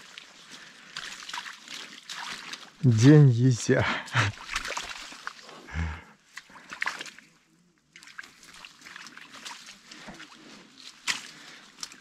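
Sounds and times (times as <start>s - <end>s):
water dripping off net: 1.0s - 2.8s.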